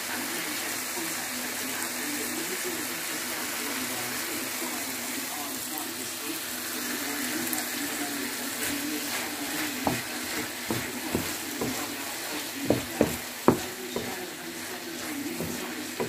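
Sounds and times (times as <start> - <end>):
food sizzling in a frying pan: 0.0 - 16.0
wooden spatula knocking on pan: 9.7 - 12.0, 12.6 - 14.4, 15.3 - 16.0.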